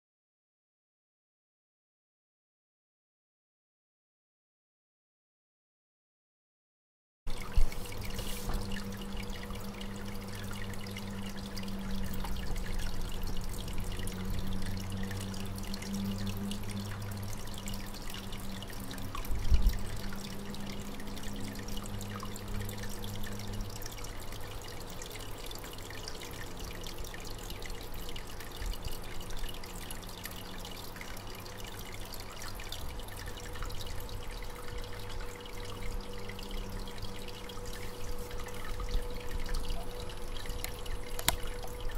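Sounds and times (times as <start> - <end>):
aquarium pump hum: 7.3 - 41.9
water trickling and splashing: 7.3 - 41.9.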